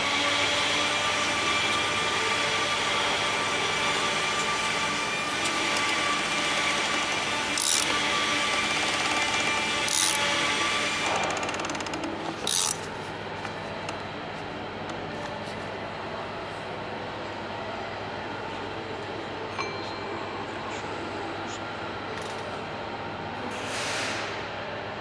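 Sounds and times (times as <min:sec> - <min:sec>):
steady mechanical hum: 0:00.0 - 0:25.0
socket ratchet clicking: 0:07.6 - 0:10.2, 0:11.2 - 0:12.8.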